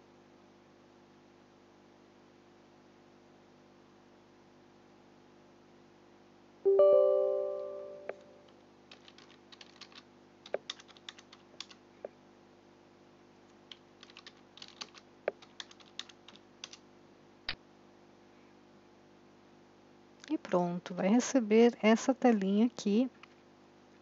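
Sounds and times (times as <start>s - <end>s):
short chime: 6.7s - 8.4s
keyboard typing: 8.9s - 11.8s, 13.7s - 16.8s.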